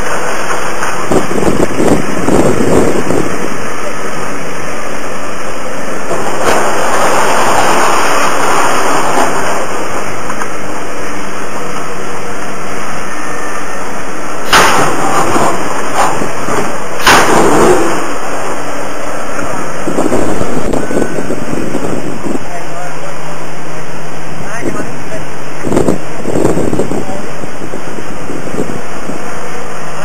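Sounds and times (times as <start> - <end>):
excavator engine running: 0.0 - 30.0
rubble crashing: 6.0 - 10.9, 14.4 - 19.0.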